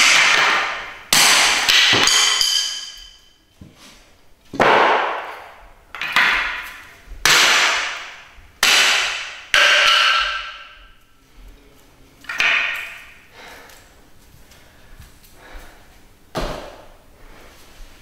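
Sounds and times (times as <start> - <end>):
hatchet chopping wood: 0.0 - 2.8, 4.6 - 5.4, 7.2 - 10.7.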